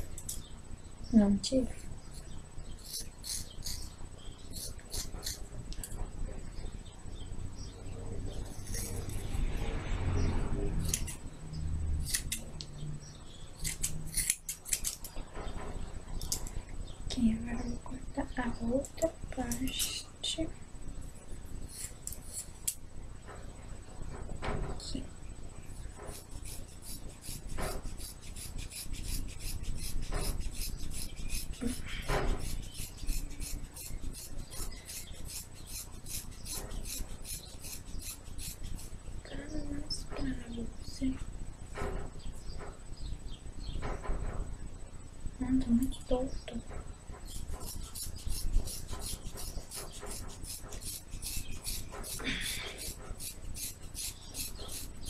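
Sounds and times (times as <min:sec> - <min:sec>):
scissors cutting hair: 0:02.8 - 0:03.9, 0:04.5 - 0:06.0, 0:08.4 - 0:09.4, 0:10.8 - 0:11.2, 0:12.0 - 0:12.7, 0:13.6 - 0:15.1, 0:21.7 - 0:22.8, 0:26.1 - 0:38.9, 0:47.3 - 0:55.0.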